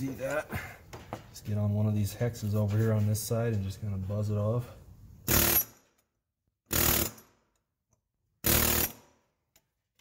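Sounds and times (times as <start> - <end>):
air chisel rattling bursts: 8.4 - 9.0.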